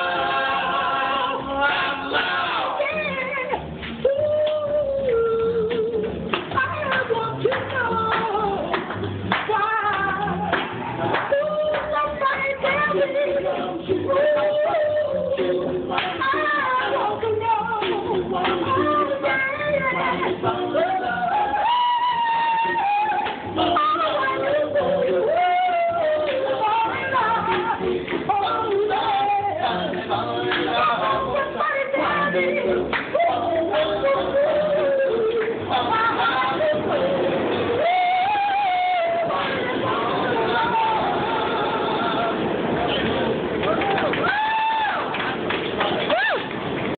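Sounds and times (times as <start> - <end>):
men singing in harmony: 0.0 - 3.1, 8.1 - 43.5
plucked double bass: 0.0 - 38.4
hand claps: 3.8 - 13.0, 14.3 - 16.3, 17.8 - 19.4, 23.2 - 23.5, 27.4 - 28.9, 29.9 - 30.8, 32.9 - 34.0, 35.2 - 35.6, 42.8 - 46.9.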